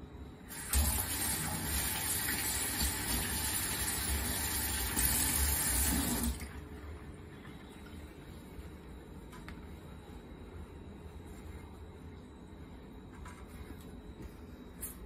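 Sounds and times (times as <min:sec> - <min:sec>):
tap water running into sink: 0:00.6 - 0:06.5.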